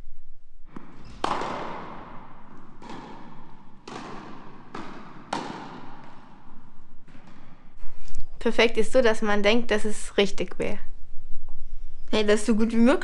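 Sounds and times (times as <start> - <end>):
tennis racket hits echoing: 0.6 - 8.3
tennis ball bounces: 0.7 - 7.8.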